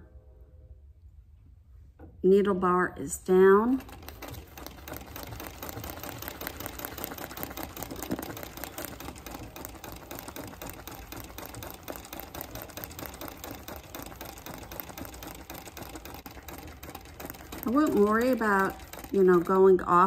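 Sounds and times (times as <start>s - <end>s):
sewing machine clattering: 3.3s - 20.0s.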